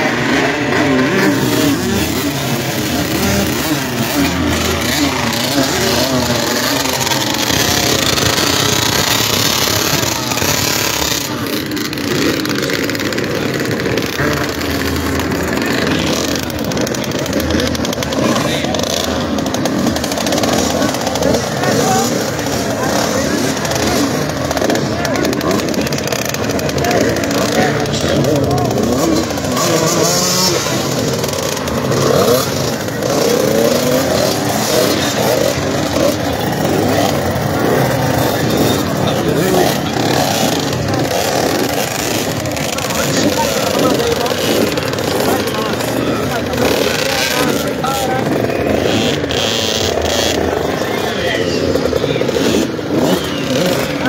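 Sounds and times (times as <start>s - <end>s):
motorcycle engines revving: 0.0s - 54.0s.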